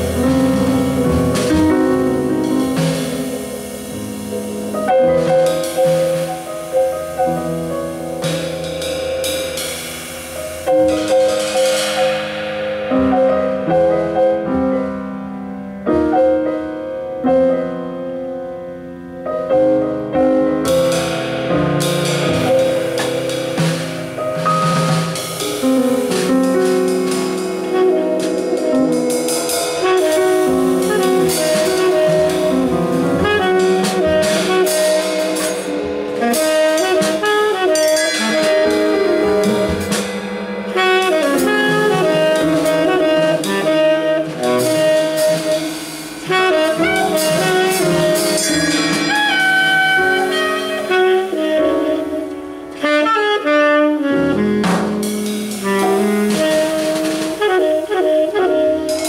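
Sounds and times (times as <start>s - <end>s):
drum kit and cymbals: 0.0s - 59.0s
electric piano: 0.0s - 59.0s
grand piano: 0.0s - 59.0s
tenor saxophone: 25.2s - 59.0s.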